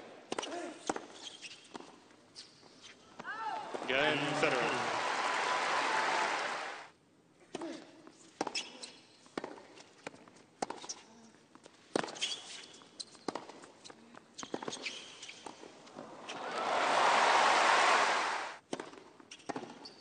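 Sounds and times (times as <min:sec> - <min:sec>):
shoe squeaks: 0:00.4 - 0:03.1, 0:08.2 - 0:09.3, 0:12.0 - 0:15.6, 0:19.3 - 0:20.0
crowd applause: 0:03.7 - 0:06.9, 0:16.0 - 0:18.6.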